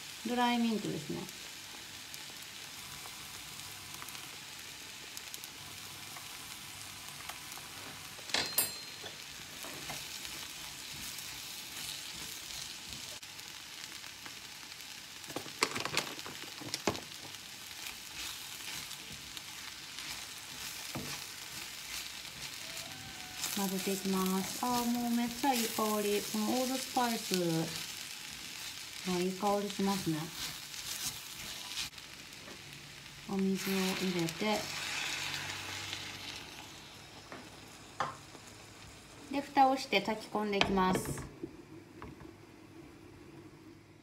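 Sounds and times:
food sizzling in a pan: 0.0 - 43.9
spatula scraping a pan: 30.3 - 32.0, 33.5 - 36.5.

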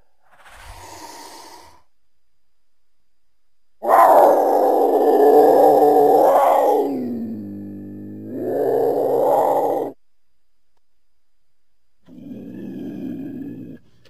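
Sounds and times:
faint breathy sound: 0.0 - 2.0.

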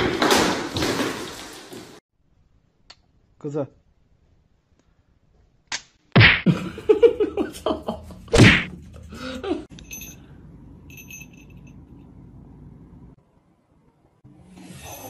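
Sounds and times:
sudden smack: 8.4 - 8.7
short high ringing tones: 9.7 - 12.0.

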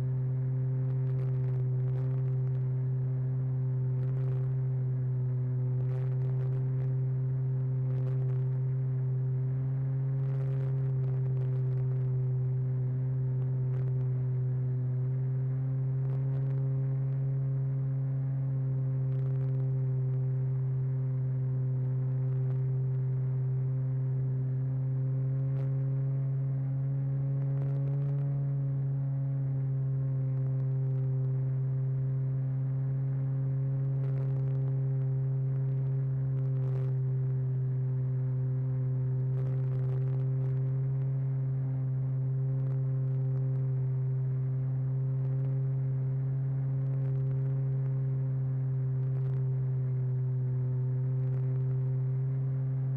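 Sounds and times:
faint ticks: 33.8 - 37.4.

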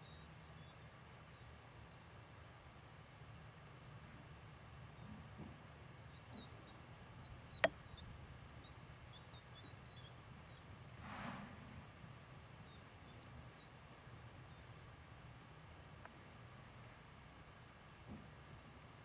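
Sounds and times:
small bird chirps: 0.0 - 1.5, 5.6 - 10.7, 11.7 - 12.0.

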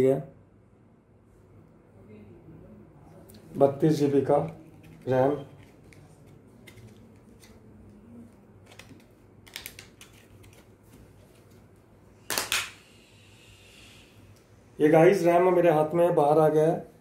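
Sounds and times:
packaging clicks and rustles: 4.4 - 11.5.

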